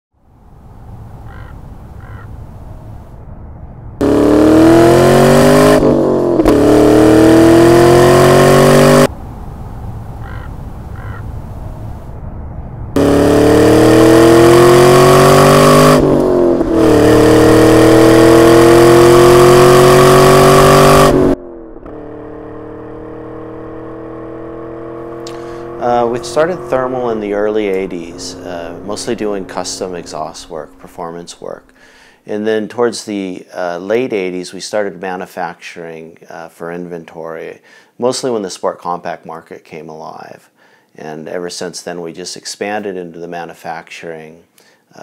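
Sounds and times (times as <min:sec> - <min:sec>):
steady engine note: 0:00.2 - 0:32.2
car accelerating hard: 0:00.6 - 0:32.0.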